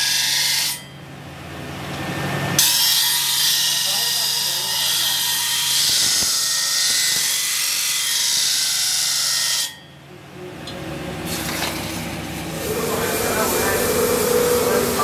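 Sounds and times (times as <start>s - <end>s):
blade on grinding wheel hissing: 12.6s - 15.0s.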